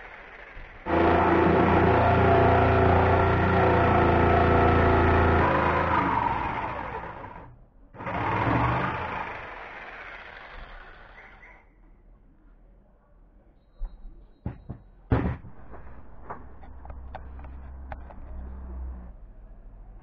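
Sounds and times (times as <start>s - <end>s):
electric jigsaw cutting wood: 0.0s - 11.4s.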